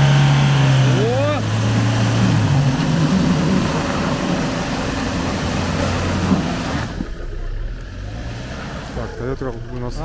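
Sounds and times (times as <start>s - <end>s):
off-road vehicle engine revving: 0.0s - 10.0s.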